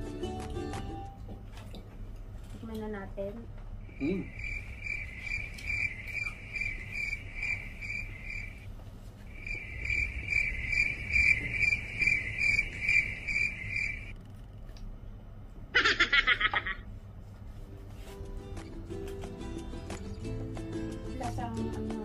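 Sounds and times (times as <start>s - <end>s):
cricket chirping: 3.8s - 8.7s, 9.3s - 14.1s.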